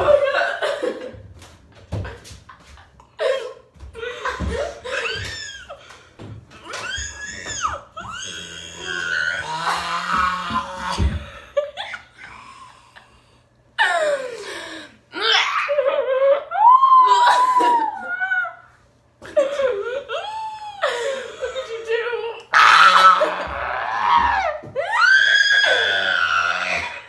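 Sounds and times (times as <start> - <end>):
girls laughing loudly: 0.0 - 1.2, 4.0 - 5.8, 15.6 - 18.6.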